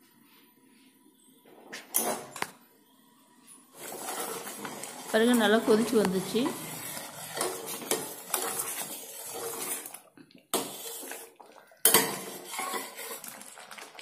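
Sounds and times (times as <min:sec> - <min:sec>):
steel ladle scraping pan: 0:03.8 - 0:13.9.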